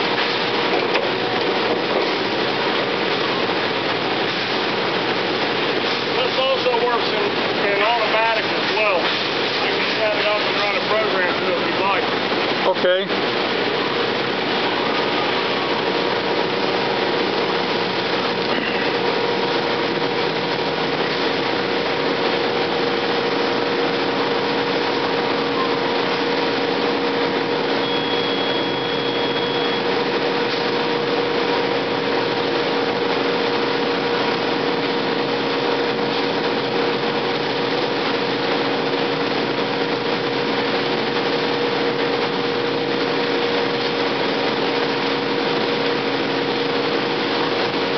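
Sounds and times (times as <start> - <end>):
short high keypad beep: 27.8 - 29.9.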